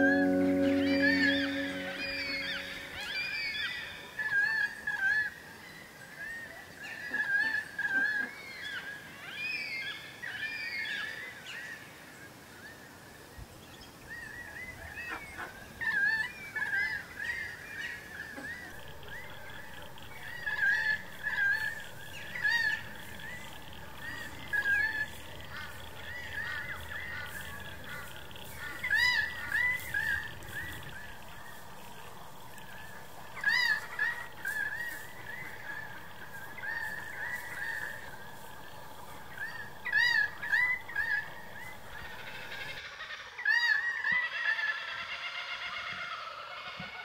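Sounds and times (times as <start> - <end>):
birds calling: 0.0 - 3.8, 13.8 - 47.0
faint steady background noise: 0.0 - 47.0.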